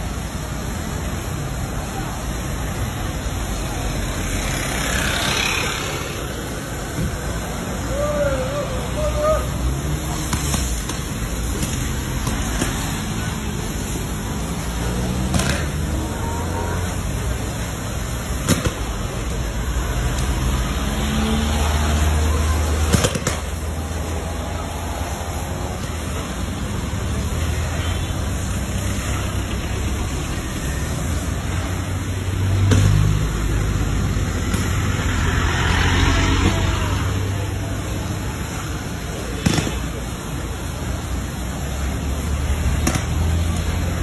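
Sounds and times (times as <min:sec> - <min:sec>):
fire hose water spray: 0:00.0 - 0:44.0
street traffic: 0:00.0 - 0:44.0
sharp cracks: 0:15.2 - 0:15.8, 0:22.8 - 0:23.6, 0:39.3 - 0:40.0.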